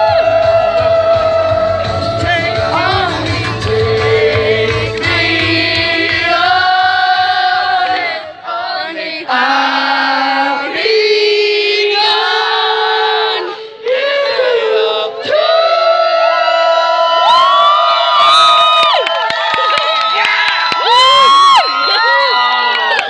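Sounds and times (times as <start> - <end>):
man singing into microphone: 0.0 - 6.8
backing music bass: 0.0 - 8.2.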